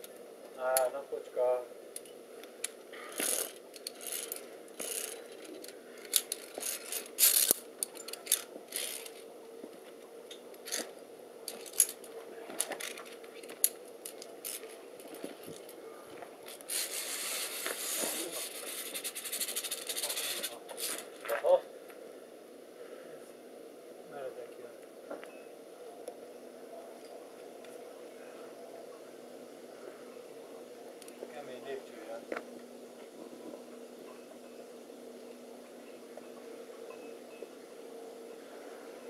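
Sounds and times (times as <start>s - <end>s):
faint steady hum: 0.0s - 39.0s
rustling hiss: 10.6s - 25.7s.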